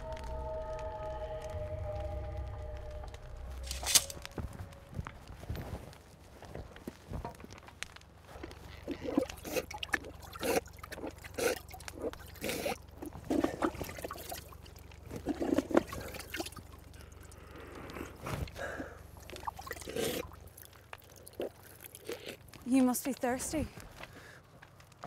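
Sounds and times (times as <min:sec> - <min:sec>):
water splashing in wooden bucket: 0:13.2 - 0:16.8
heavy breaths: 0:16.9 - 0:19.3, 0:23.7 - 0:24.8.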